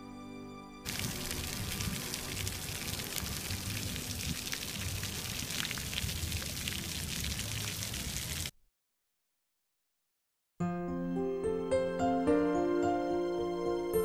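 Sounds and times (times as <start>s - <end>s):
fountain jets splashing on stone: 0.9s - 8.5s.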